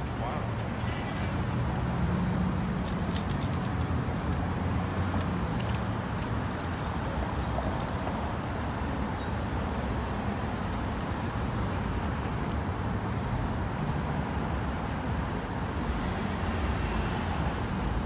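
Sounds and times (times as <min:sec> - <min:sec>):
city traffic hum: 0:00.0 - 0:18.0.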